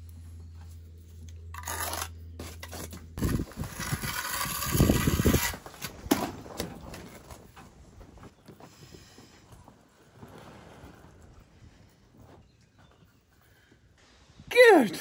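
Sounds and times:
low steady hum: 0.0 - 15.0
trowel scraping mortar: 1.5 - 5.9.

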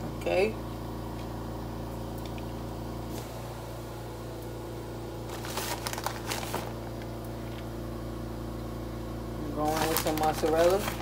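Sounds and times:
appliance fan humming: 0.0 - 11.0
plastic bag crinkling: 5.2 - 7.8, 9.5 - 11.0.

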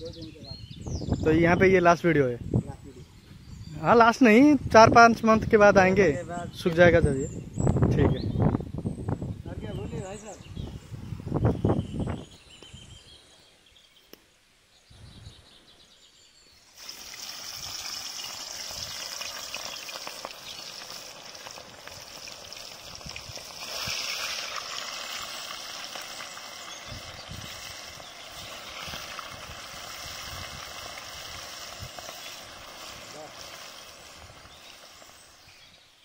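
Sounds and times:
fish sizzling in hot oil: 16.7 - 35.8.

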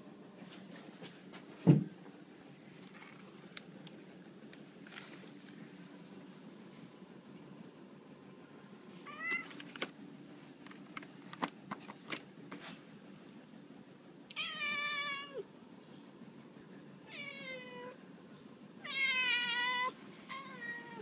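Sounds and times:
cat meowing: 9.1 - 9.4, 14.3 - 15.4, 18.8 - 21.0.

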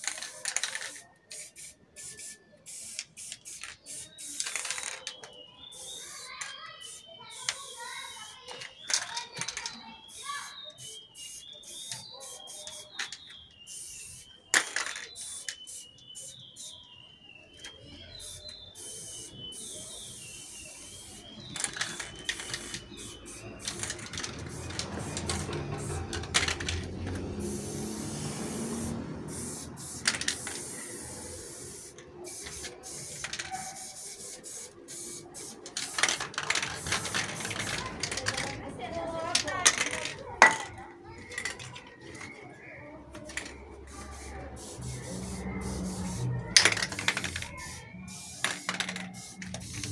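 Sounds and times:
aerosol spray can hissing: 0.0 - 4.8, 5.8 - 8.4, 10.1 - 13.1, 13.7 - 16.8, 18.2 - 38.5, 43.9 - 49.9.

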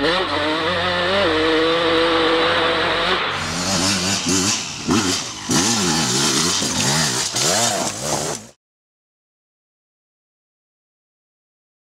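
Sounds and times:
dirt bike engine revving: 0.0 - 8.6.

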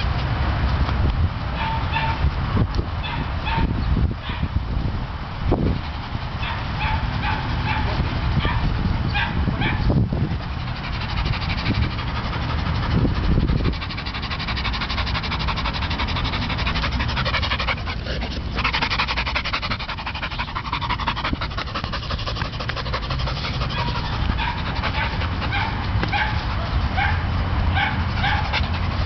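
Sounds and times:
dog panting: 5.5 - 29.0.

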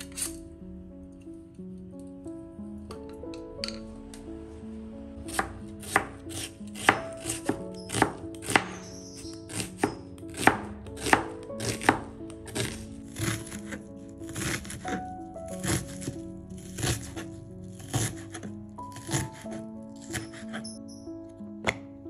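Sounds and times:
soft background music: 0.0 - 22.0
knife chopping on cutting board: 5.3 - 15.0, 15.6 - 20.7.

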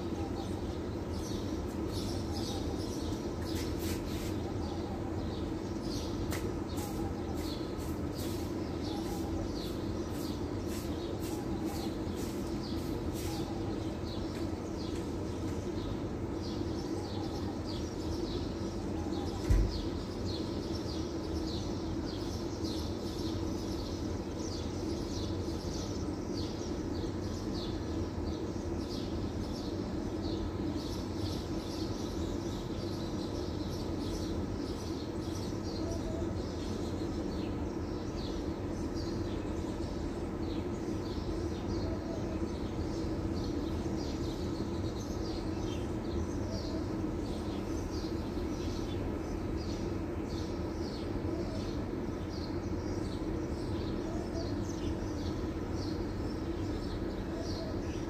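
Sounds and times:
small birds chirping: 0.0 - 58.0
steady low hum: 0.0 - 58.0.

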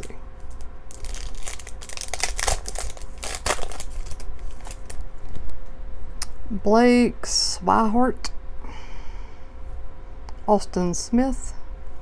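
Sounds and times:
foil wrapper crinkling and tearing: 0.4 - 5.0.

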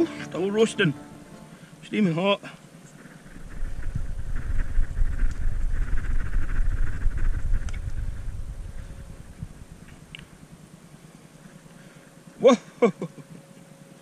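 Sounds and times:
light ticks: 7.6 - 7.9.

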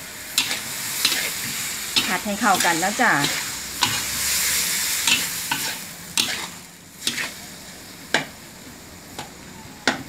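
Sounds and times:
food sizzling in hot oil: 0.0 - 9.5
metal spatula scraping wok: 0.3 - 7.7.

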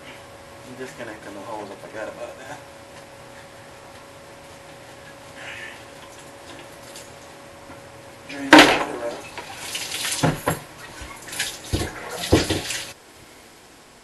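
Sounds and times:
water splashing and pouring: 9.1 - 13.0.

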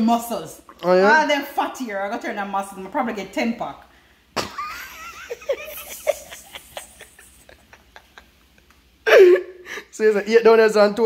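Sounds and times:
woman giggling: 4.4 - 9.9.

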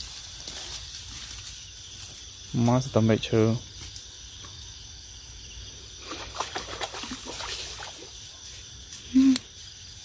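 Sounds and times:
twigs and leaves crackling: 0.0 - 5.0
night insects chirring: 0.0 - 10.0.

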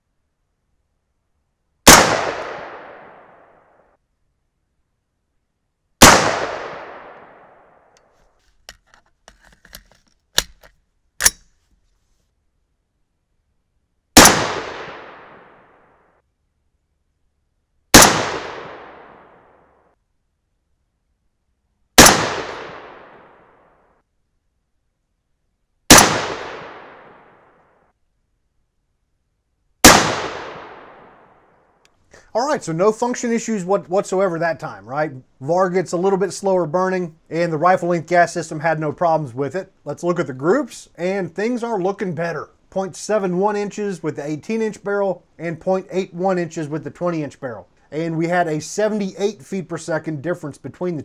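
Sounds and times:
rifle shot echoing: 1.9 - 3.6, 6.0 - 8.0, 14.2 - 15.9, 17.9 - 19.6, 22.0 - 23.7, 25.9 - 27.6, 29.8 - 31.5
small clicks: 7.9 - 12.0.

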